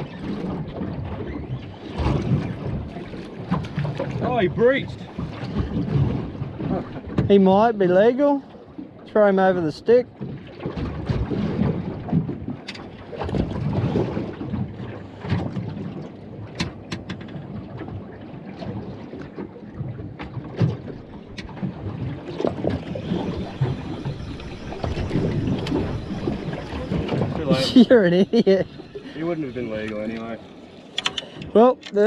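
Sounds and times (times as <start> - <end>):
wind buffeting microphone: 0.0 - 7.8, 10.1 - 32.0
water lapping against boat: 0.0 - 32.0
knocks on boat: 5.2 - 7.5, 10.2 - 17.6.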